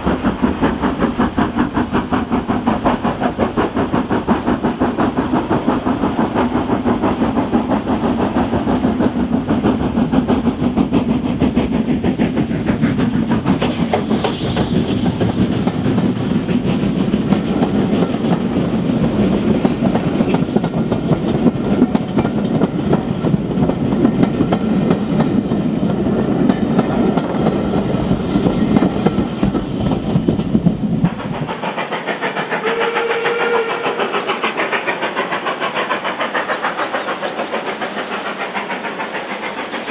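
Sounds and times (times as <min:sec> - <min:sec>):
steam locomotive exhaust beats: 0:00.0 - 0:39.9
train wheels clattering over rails: 0:00.0 - 0:39.9
train whistle: 0:32.5 - 0:34.4.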